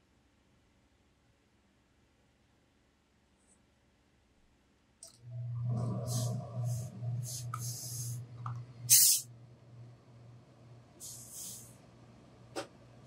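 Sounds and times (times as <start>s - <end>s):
low steady hum: 5.0s - 13.0s
steam iron hissing: 6.1s - 8.2s, 8.9s - 9.3s, 11.0s - 11.7s.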